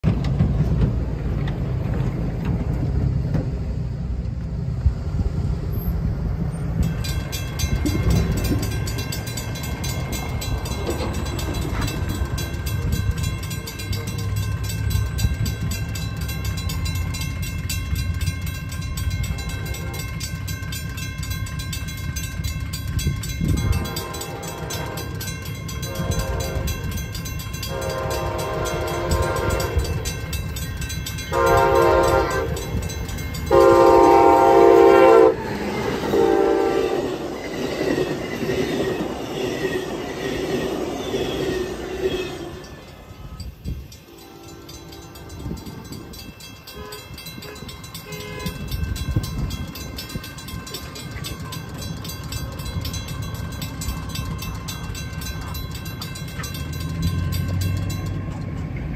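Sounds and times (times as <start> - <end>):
railroad crossing bell ringing: 5.8 - 58.9
train horn blasts: 19.2 - 20.3, 23.4 - 27.0, 27.6 - 30.2, 31.3 - 37.4, 39.4 - 49.3.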